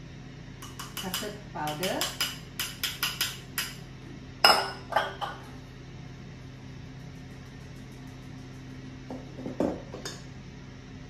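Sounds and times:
low steady hum: 0.0s - 11.0s
bowls and sieve clinking: 4.4s - 5.6s.

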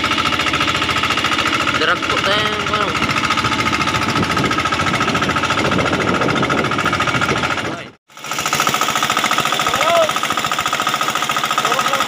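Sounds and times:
boat engine running: 0.0s - 12.0s.

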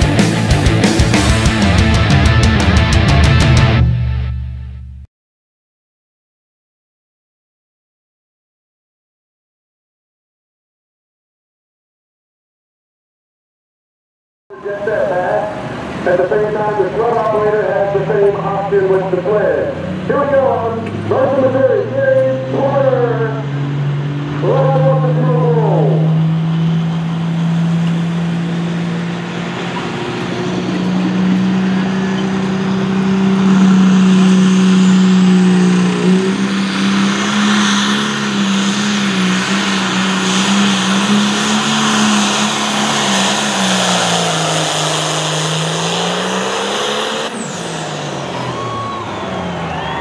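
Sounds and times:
diesel tractor engine running flat out: 25.0s - 50.0s.

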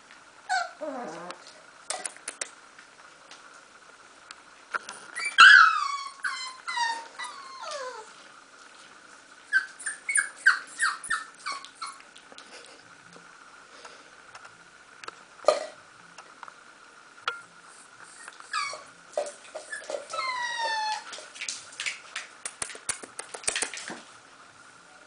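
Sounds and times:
puppies whimpering: 5.2s - 8.1s, 9.5s - 12.0s, 18.2s - 21.1s.

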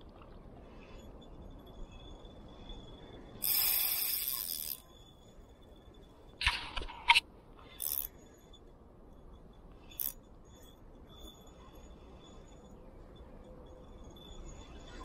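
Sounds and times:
fishing reel drag clicking: 3.4s - 4.8s, 7.8s - 8.1s, 9.9s - 10.2s.

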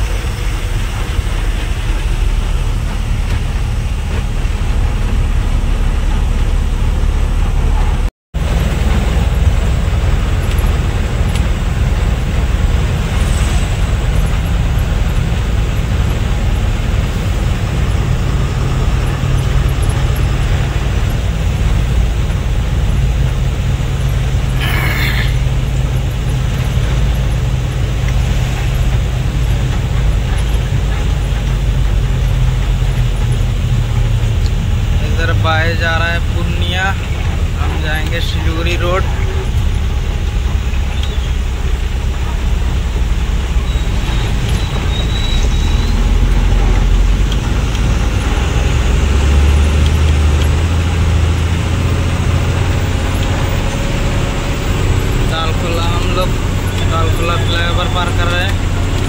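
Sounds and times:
truck engine and tyre drone: 0.0s - 59.0s.

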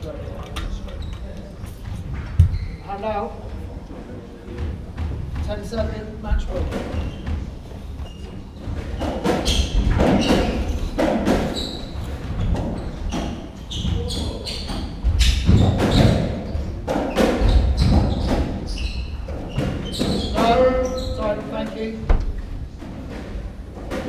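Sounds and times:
shoes squeaking on wooden floor: 0.7s - 23.9s
ball smacking rackets and walls: 4.5s - 24.0s
person speaking: 20.3s - 22.4s.

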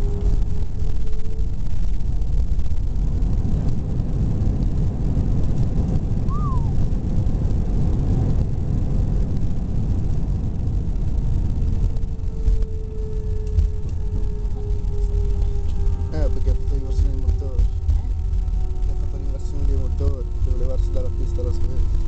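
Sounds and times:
faint steady hum: 0.0s - 22.0s
low rumble of wheels and engines: 0.0s - 22.0s.

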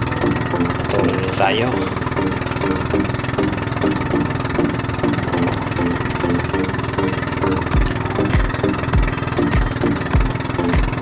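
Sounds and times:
boat engine running: 0.0s - 11.0s.

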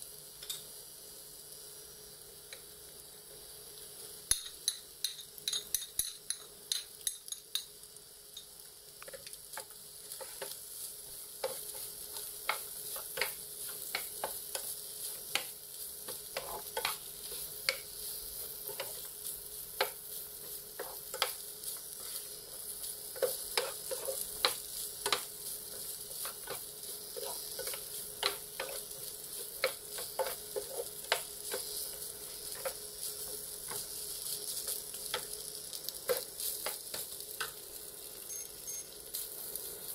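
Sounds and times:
rice sizzling in a frying pan: 0.0s - 39.9s
wooden spatula scraping a pan: 11.4s - 19.2s, 20.4s - 35.2s.

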